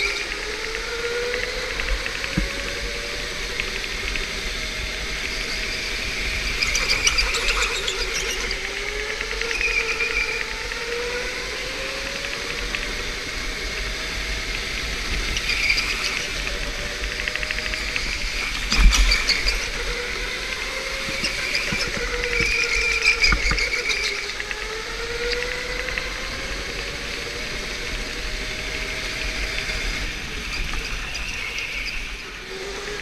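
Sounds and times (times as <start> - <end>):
electric motor whine: 0.0 - 33.0
tyre squeal: 21.0 - 24.4.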